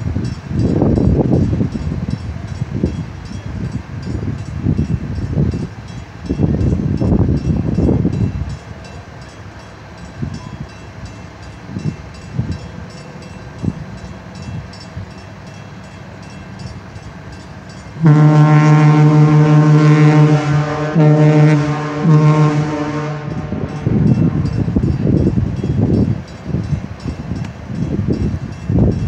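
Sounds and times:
deep ship horn blast: 18.0 - 24.5.

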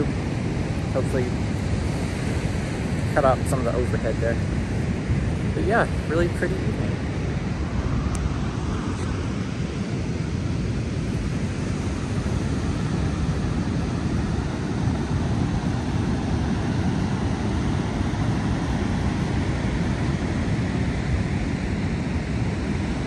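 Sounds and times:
ocean surf breaking: 0.0 - 23.0
wind rumbling on microphone: 0.0 - 23.0.

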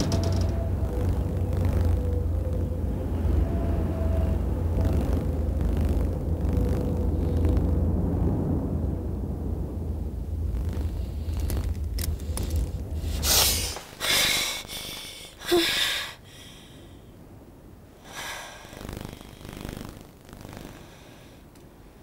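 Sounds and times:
low rumble: 0.0 - 22.0
woman gasping breaths: 14.0 - 17.0.

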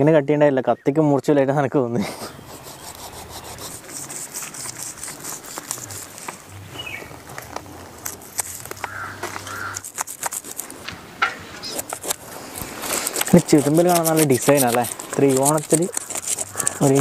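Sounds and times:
knife scraping fish scales: 2.4 - 10.9, 11.5 - 17.0
crow cawing: 8.8 - 9.9, 15.9 - 17.0.

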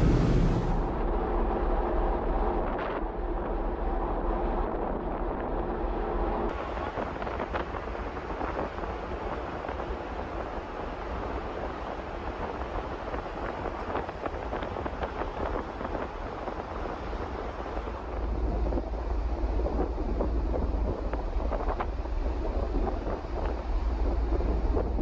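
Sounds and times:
machinery hum: 0.0 - 1.2
water rushing along ship hull: 0.0 - 2.5, 6.5 - 25.0
ship rumble: 0.0 - 25.0
wind buffeting microphone: 0.0 - 25.0.

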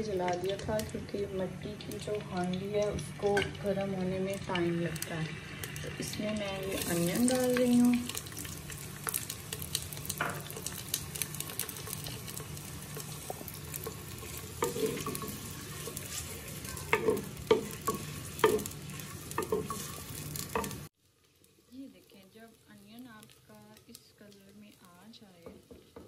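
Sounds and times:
onions sizzling in oil: 0.0 - 26.0
wooden spoon scraping pot: 5.8 - 20.9.

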